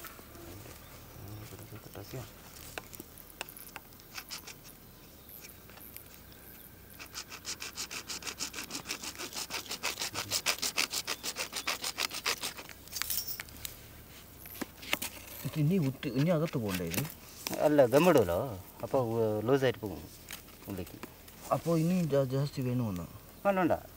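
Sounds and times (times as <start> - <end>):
hand tool scraping a pipe: 7.0 - 13.4.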